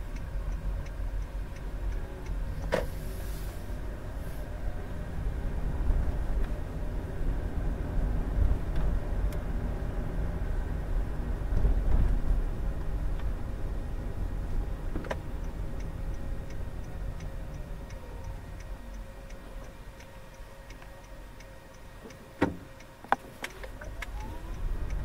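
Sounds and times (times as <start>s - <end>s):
turn signal ticking: 0.0s - 2.9s, 11.4s - 25.0s
road and engine noise in car: 0.0s - 25.0s.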